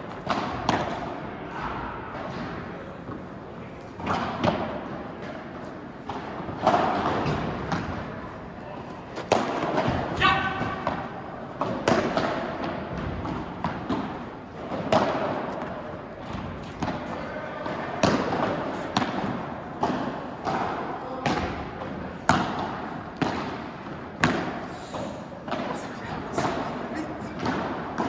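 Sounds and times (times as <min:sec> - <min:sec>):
racket hitting ball: 0:00.1 - 0:01.2, 0:04.0 - 0:08.3, 0:09.1 - 0:24.7, 0:26.4 - 0:28.0
ball bouncing on court: 0:09.2 - 0:24.6.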